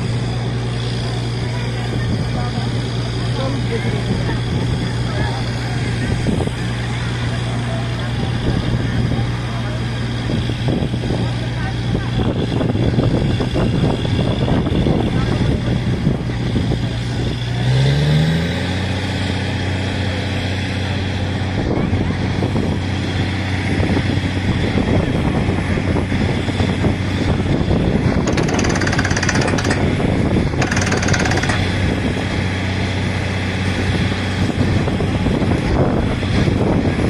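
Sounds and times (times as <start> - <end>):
drilling rig engine: 25.4 - 37.0
rapid drill hammering: 28.2 - 30.0, 30.6 - 31.9.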